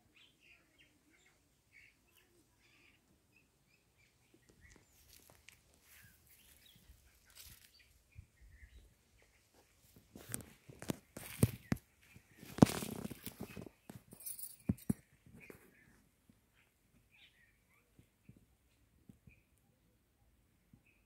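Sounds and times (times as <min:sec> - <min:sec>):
faint bird chirps: 0:00.0 - 0:10.3, 0:11.2 - 0:21.0
soft rustling: 0:04.5 - 0:07.9, 0:09.2 - 0:16.0
scuffs: 0:10.1 - 0:13.7.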